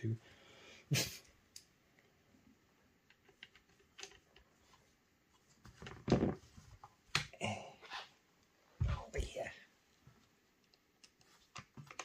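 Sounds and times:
knock and rustle: 5.6 - 6.9.

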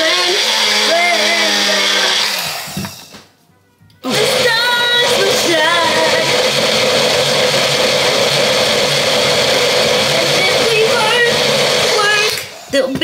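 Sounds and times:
pop song with singing: 0.0 - 2.4, 4.0 - 8.6, 9.5 - 13.0
blender motor running: 0.0 - 3.0, 4.1 - 12.8.

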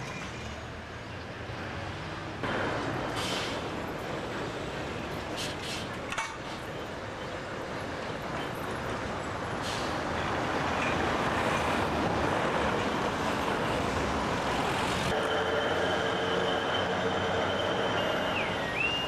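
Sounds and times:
tram rumbling on rails: 0.0 - 19.0
tram wheels squealing: 9.6 - 19.0.

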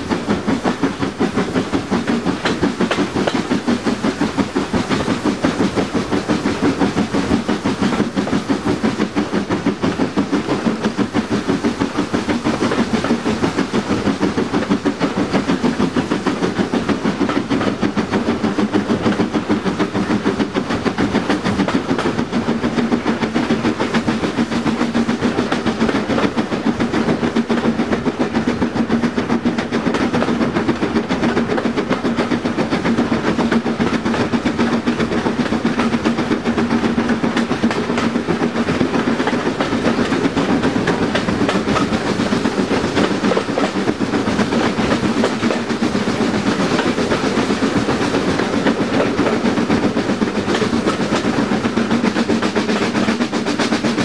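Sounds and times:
steam train exhaust beat: 0.0 - 54.0
train wheels over rails: 0.0 - 54.0.

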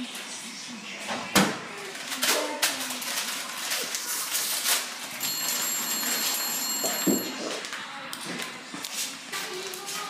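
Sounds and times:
packet rustling and crinkling: 1.8 - 6.4, 7.6 - 10.0
electronic telephone ring: 5.2 - 7.5.

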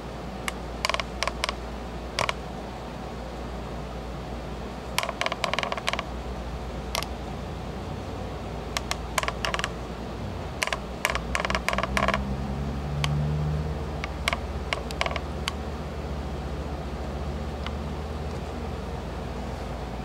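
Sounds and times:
steady low hum: 0.0 - 20.0
sharp small clicks: 0.5 - 1.6, 2.2 - 2.4, 5.0 - 6.1, 7.0 - 7.2, 8.8 - 9.8, 10.6 - 12.3, 14.0 - 15.6.

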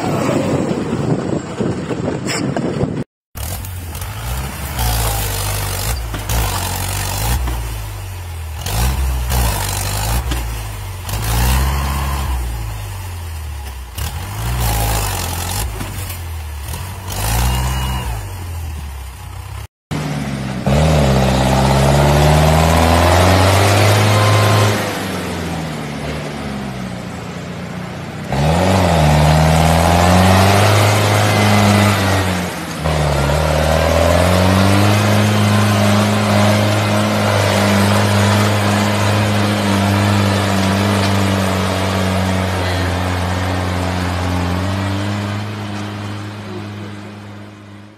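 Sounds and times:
tractor engine revving: 0.0 - 47.9
tractor engine under heavy load: 0.0 - 47.9.

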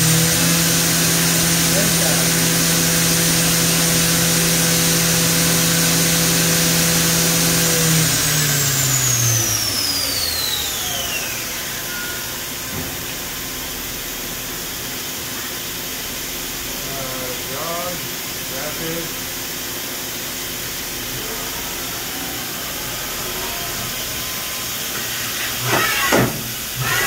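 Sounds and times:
machine spindle whining: 0.0 - 14.4, 20.1 - 27.0.

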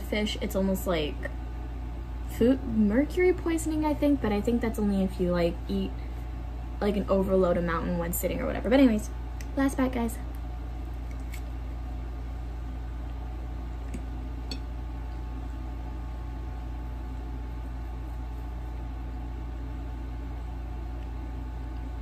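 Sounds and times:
low background hum: 0.0 - 22.0.

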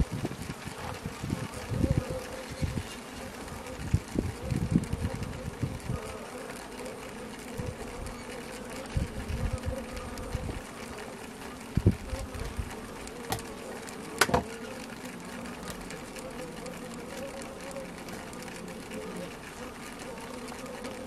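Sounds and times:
bees tapping and knocking: 0.0 - 21.0
honey bees humming: 0.0 - 21.0.

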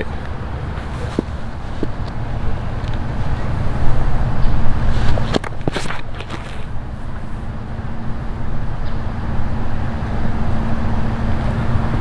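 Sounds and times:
faint steady hum: 0.0 - 12.0
low outdoor rumble: 0.0 - 12.0.

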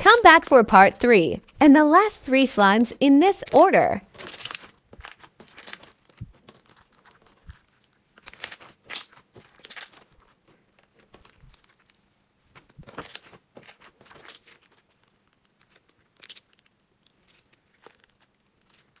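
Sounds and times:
slime crackling and popping: 3.4 - 19.0
slime squishing: 3.4 - 19.0
slime sticky tearing: 3.5 - 11.9, 12.9 - 19.0.

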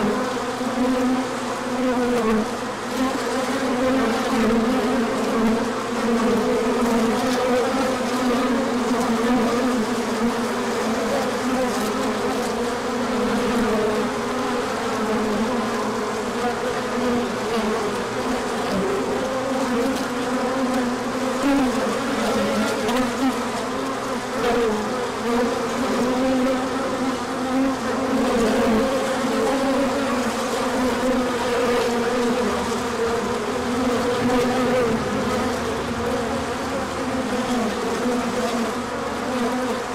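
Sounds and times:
honey bees buzzing: 0.0 - 39.9.

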